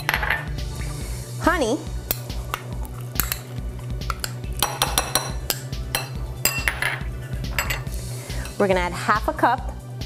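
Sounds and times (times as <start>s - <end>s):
metal spoon clinking on glass bowls: 3.2s - 3.5s, 4.1s - 8.6s.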